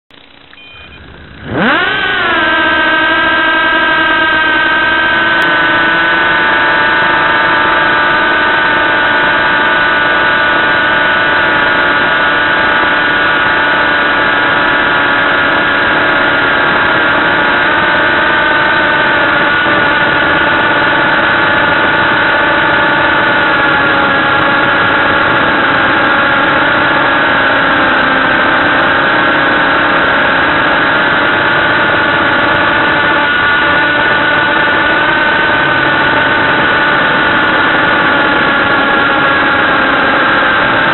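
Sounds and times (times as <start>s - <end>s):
quadcopter propellers whining: 0.1s - 40.9s.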